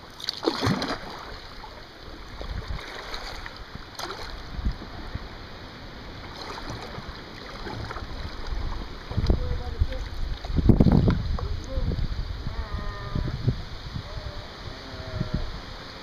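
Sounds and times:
kayak paddle splashing: 0.0 - 12.6
river current rushing: 0.0 - 16.0.

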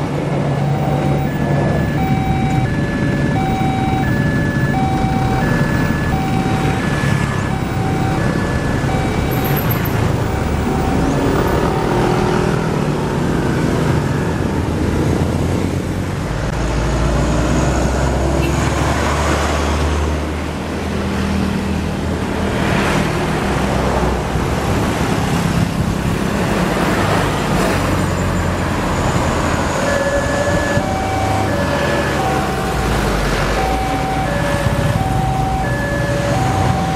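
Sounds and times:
road traffic passing: 0.0 - 36.9.

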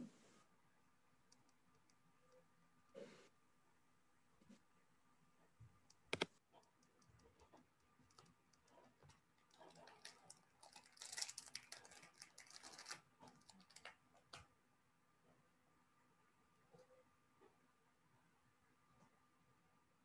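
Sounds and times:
keyboard typing: 5.9 - 8.9.

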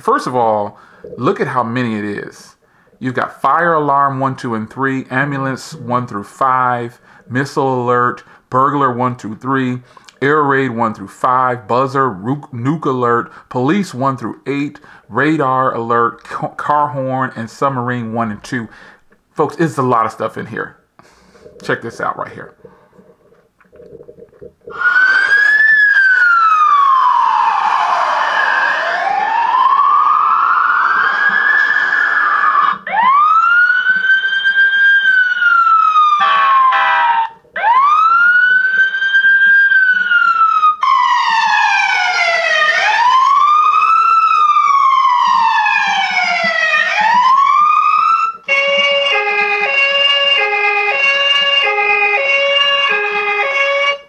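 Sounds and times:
electronic siren wailing: 0.0 - 2.1, 24.6 - 54.0.

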